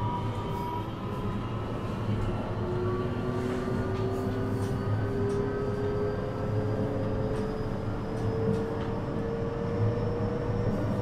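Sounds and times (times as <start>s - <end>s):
train running rumble: 0.0s - 11.0s.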